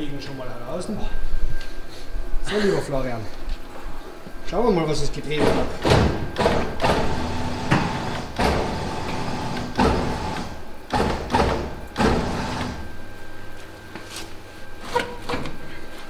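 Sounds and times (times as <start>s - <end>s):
heavy metal clunks and knocks: 5.4s - 8.9s.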